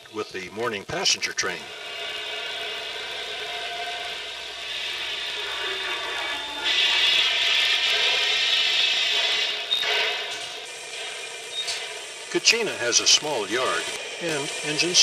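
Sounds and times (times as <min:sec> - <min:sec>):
model train motor whirring: 0:01.4 - 0:15.0.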